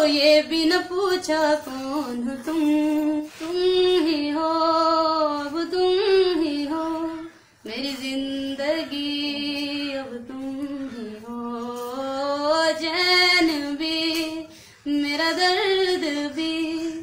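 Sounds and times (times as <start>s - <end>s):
woman singing unaccompanied: 0.0s - 17.0s.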